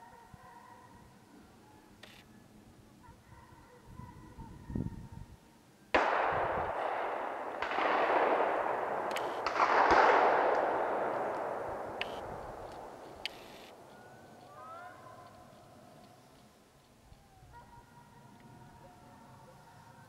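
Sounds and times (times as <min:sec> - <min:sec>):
gunshots with rolling echo: 0:05.9 - 0:15.2.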